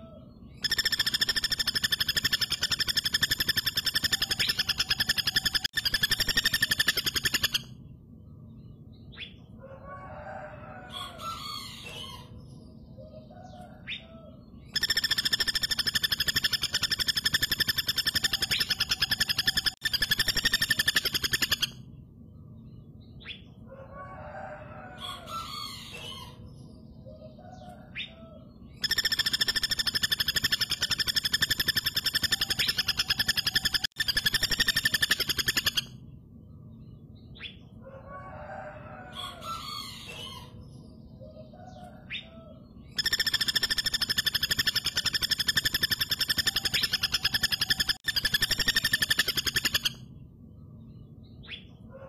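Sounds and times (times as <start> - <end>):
woodpecker rattling call: 0.5 - 7.8, 14.6 - 21.8, 28.7 - 36.0, 42.9 - 50.0.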